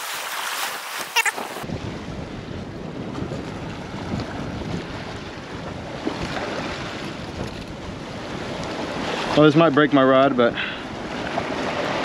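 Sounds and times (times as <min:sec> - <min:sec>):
surf washing against rocks: 0:00.0 - 0:02.1, 0:02.9 - 0:12.0
wind buffeting microphone: 0:01.4 - 0:10.0.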